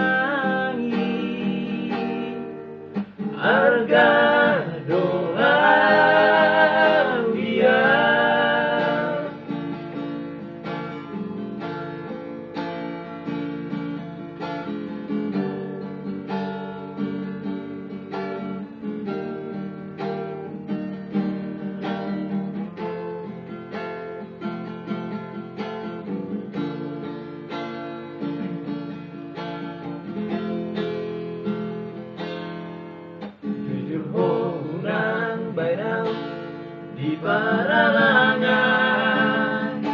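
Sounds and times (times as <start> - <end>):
men singing together: 0.0 - 2.4, 3.3 - 9.4, 33.7 - 36.3, 36.9 - 39.9
acoustic guitar strummed and picked: 0.0 - 39.9.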